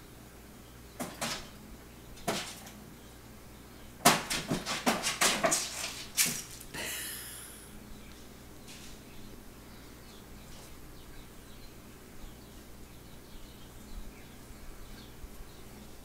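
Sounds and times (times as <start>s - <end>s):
cat paws knocking on tv: 1.0s - 1.5s
cat scuffling: 2.2s - 2.8s, 4.1s - 6.7s.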